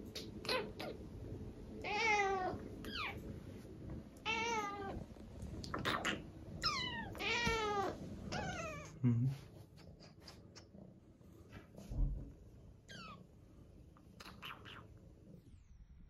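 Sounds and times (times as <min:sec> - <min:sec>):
cat meowing: 0:01.8 - 0:03.2, 0:04.2 - 0:05.0, 0:06.6 - 0:09.0
low thump: 0:11.9 - 0:12.3.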